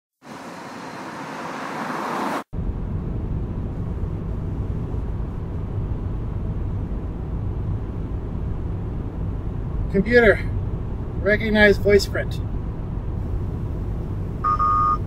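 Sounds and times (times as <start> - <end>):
car approaching on road: 0.2 - 15.0
road noise inside car: 0.2 - 15.0.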